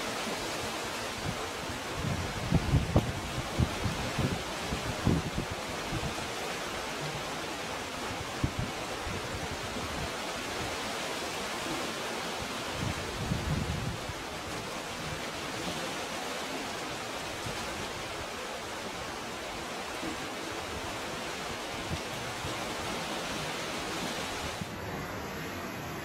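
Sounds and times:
wind rumble on microphone: 0.1 - 10.7, 12.6 - 15.9.

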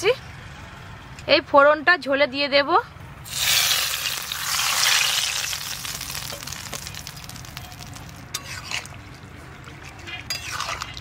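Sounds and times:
hot oil sizzling in a pot: 3.3 - 9.0.

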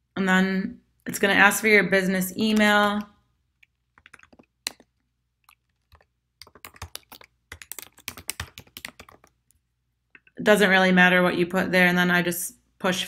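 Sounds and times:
typing on computer keyboard: 2.6 - 9.4.

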